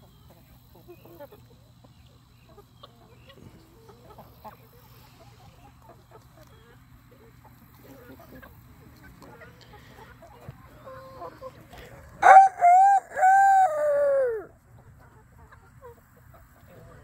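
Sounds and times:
chickens clucking softly: 0.0 - 17.0
rooster crowing: 12.2 - 14.5.

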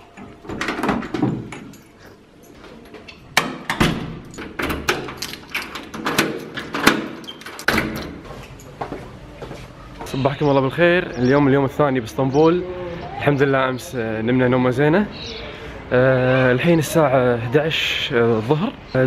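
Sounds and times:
door handle and lock clicking: 2.9 - 8.2.

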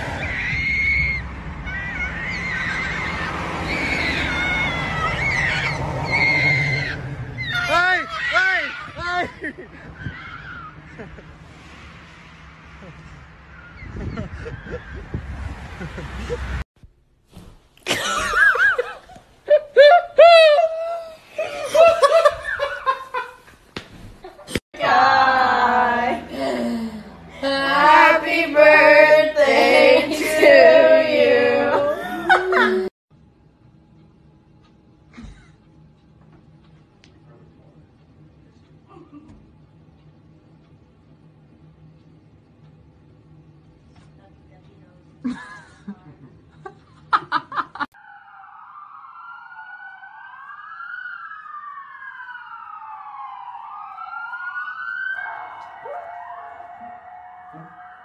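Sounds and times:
emergency sirens wailing: 0.0 - 11.4, 48.0 - 58.0
group singing a celebration song: 24.8 - 32.9.

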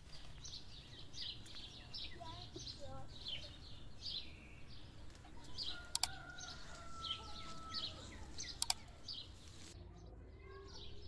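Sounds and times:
songbirds chirping: 0.0 - 11.0
sharp clicks: 5.1 - 6.2, 8.4 - 9.1
rooster crowing: 5.6 - 8.3.

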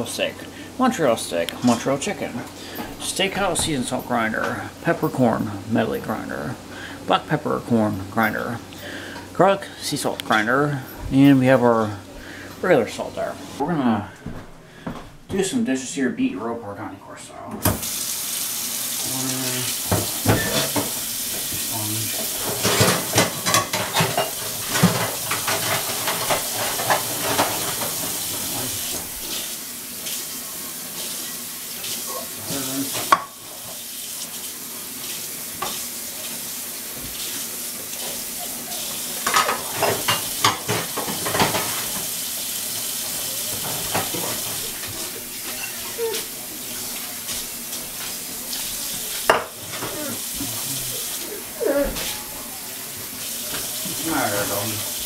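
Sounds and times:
running tap water: 0.0 - 13.6, 17.6 - 55.0
dishes and utensils clattering: 19.8 - 29.5, 32.1 - 33.8, 37.9 - 42.2, 42.8 - 54.8.

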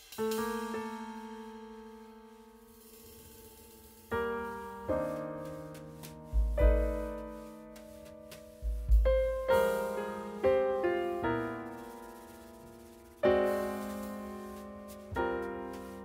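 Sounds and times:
piano chords: 0.2 - 16.0
deep bass booms: 6.3 - 7.1, 8.6 - 9.7.

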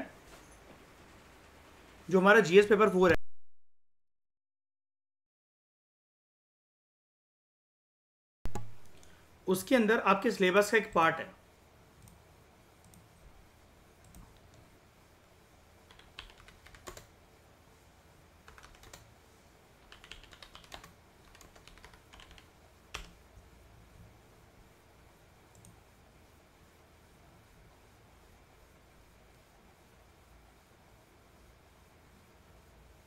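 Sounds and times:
computer keyboard keystrokes: 15.9 - 17.1, 18.4 - 19.1, 19.8 - 23.2.

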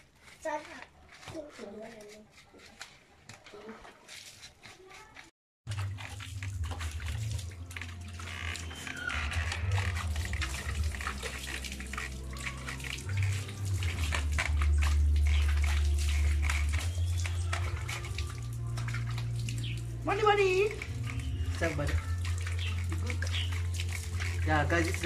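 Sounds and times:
water splashing in plastic basin: 0.0 - 25.0
background music with low bass: 5.7 - 25.0.

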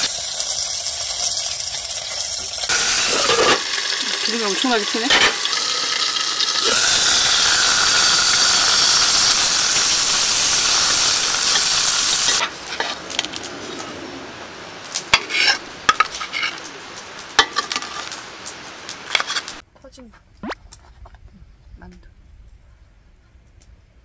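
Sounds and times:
dumplings sizzling in hot oil: 0.0 - 19.6
utensils clicking against pan: 1.2 - 6.8.

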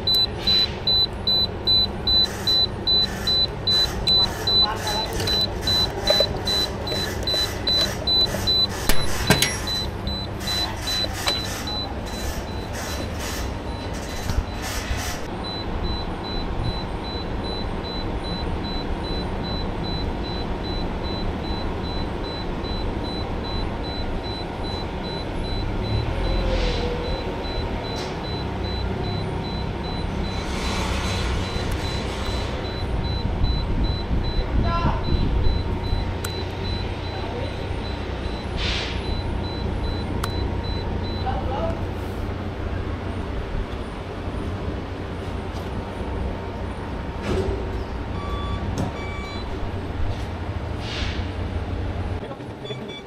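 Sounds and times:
rapid beeping: 0.0 - 14.7.

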